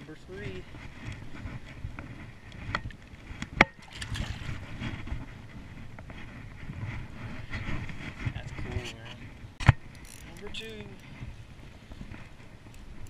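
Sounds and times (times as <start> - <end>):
wind: 0.0 - 13.0
water noise: 2.4 - 8.6.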